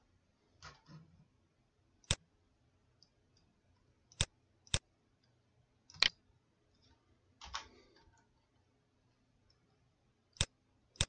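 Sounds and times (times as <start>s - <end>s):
keyboard and mouse clicks: 2.0s - 2.2s, 4.1s - 6.2s, 6.8s - 8.3s.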